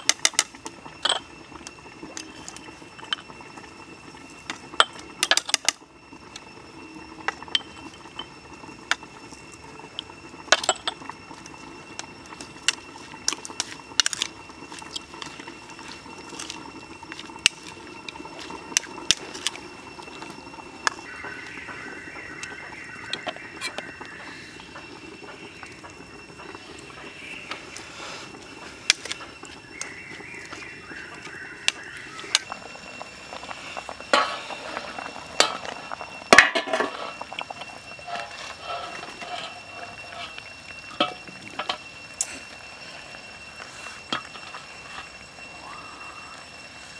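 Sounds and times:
spoon scraping a bowl: 38.0s - 40.4s.

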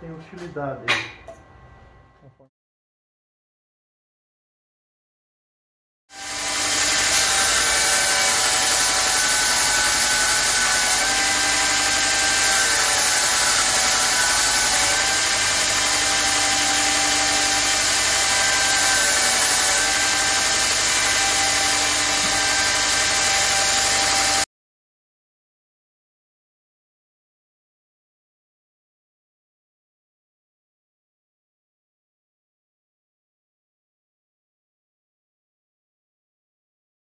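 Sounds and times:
belt sander sanding wood: 6.2s - 24.5s.

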